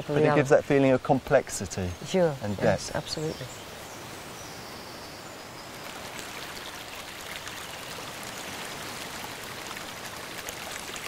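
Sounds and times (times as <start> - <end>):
small drip-like splashes: 5.7 - 11.0
running water splashing: 5.8 - 11.0.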